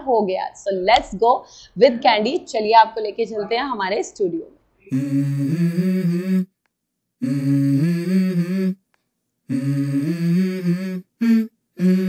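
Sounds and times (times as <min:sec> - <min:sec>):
person humming a melody: 0:04.9 - 0:06.6, 0:07.2 - 0:08.8, 0:09.5 - 0:12.0.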